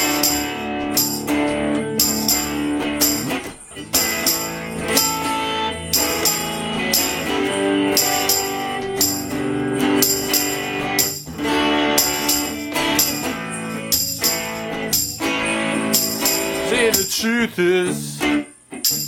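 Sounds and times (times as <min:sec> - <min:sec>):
sharp high percussive accent: 0:00.0 - 0:18.0, 0:18.8 - 0:19.0
electric guitar strumming: 0:00.0 - 0:19.0.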